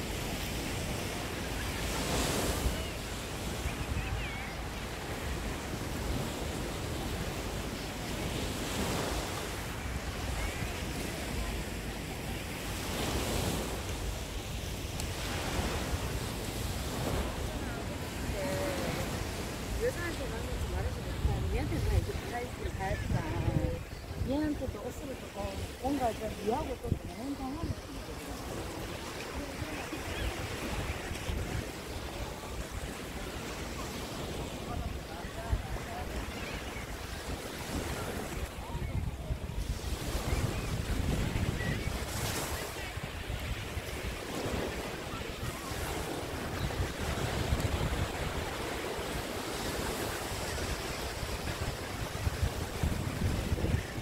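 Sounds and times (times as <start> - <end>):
small waves washing onto beach: 0.0 - 54.0
wind buffeting microphone: 12.9 - 32.5, 37.7 - 48.7, 49.8 - 54.0.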